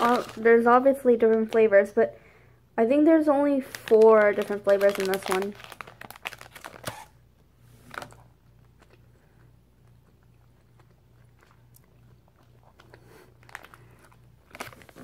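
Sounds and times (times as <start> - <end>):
plastic bag rustling: 0.0 - 1.7, 3.6 - 7.1, 12.8 - 15.0
low steady hum: 0.0 - 15.0
wet chewing sounds: 8.6 - 15.0.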